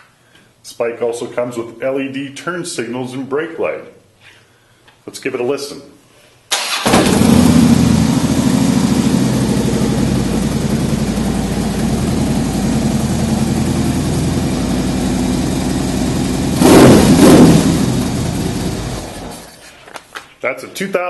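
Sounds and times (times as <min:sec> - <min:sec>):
motorcycle engine idling: 0:07.0 - 0:19.4.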